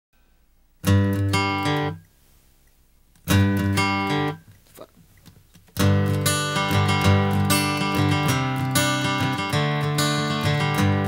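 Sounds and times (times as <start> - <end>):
acoustic guitar strumming chords: 0.2 - 2.1, 3.2 - 4.6, 5.7 - 11.0.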